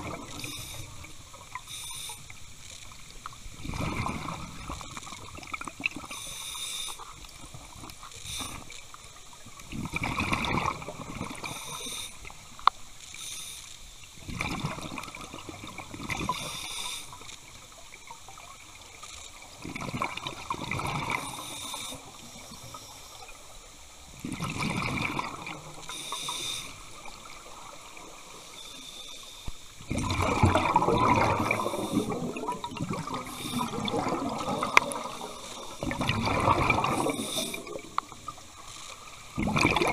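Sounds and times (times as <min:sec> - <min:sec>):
regulator hiss on inhale: 0:00.3 - 0:02.5, 0:06.0 - 0:07.3, 0:08.1 - 0:09.1, 0:11.4 - 0:12.4, 0:13.0 - 0:14.0, 0:16.2 - 0:17.5, 0:21.1 - 0:23.6, 0:25.8 - 0:27.1, 0:28.3 - 0:29.8, 0:31.4 - 0:32.2, 0:33.1 - 0:33.9, 0:34.7 - 0:35.9, 0:36.9 - 0:38.2
bubbling rush of exhaled air: 0:03.6 - 0:04.8, 0:29.9 - 0:38.1, 0:39.4 - 0:39.9.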